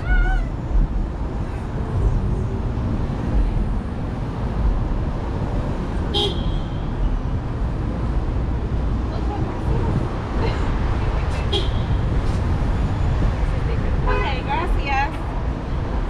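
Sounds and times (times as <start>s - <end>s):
city traffic rumble: 0.0s - 16.0s
vehicle horn toot: 6.1s - 7.0s.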